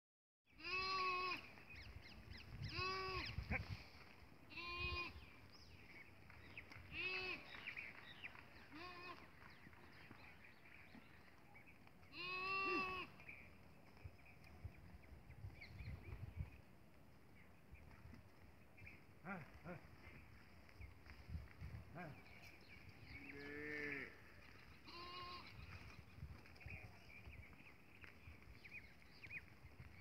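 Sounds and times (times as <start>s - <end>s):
livestock bleating: 0.6s - 1.5s, 2.7s - 3.4s, 4.5s - 5.2s, 12.1s - 13.1s, 23.3s - 24.2s, 24.8s - 25.6s.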